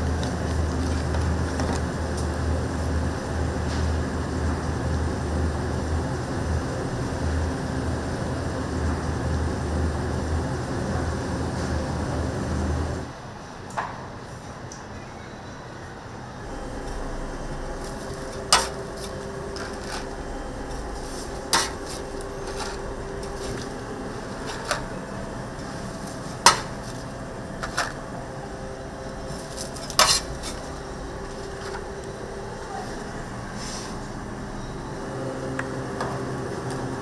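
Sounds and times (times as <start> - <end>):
steady hum: 0.0 - 13.4, 16.2 - 37.0
metal utensils clinking on pans: 17.9 - 20.1, 21.1 - 23.7, 26.4 - 27.0, 29.3 - 30.8.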